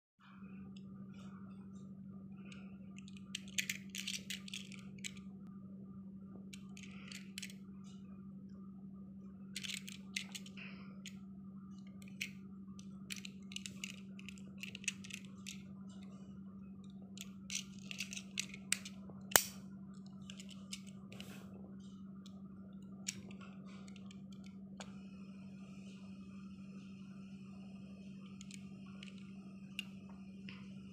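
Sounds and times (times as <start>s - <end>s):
steady low hum: 0.2s - 30.9s
toy car clicks and taps: 3.0s - 5.2s, 6.6s - 7.5s, 9.6s - 10.5s, 13.1s - 15.6s, 17.5s - 19.5s.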